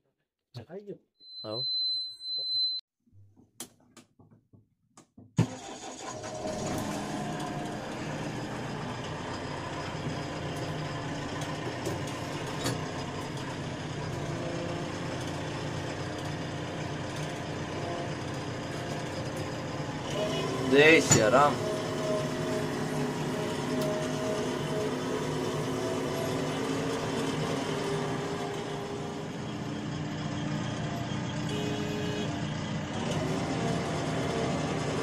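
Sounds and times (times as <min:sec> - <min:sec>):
short high beep: 0:01.2 - 0:02.8
diesel engine starting and idling: 0:05.4 - 0:35.0.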